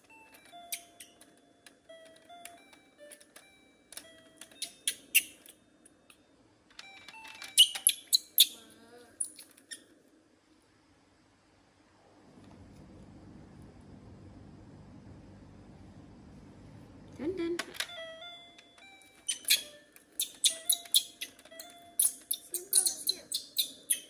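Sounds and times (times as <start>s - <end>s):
toy keyboard beeping notes: 0.0s - 5.6s, 6.8s - 8.6s, 17.5s - 24.0s.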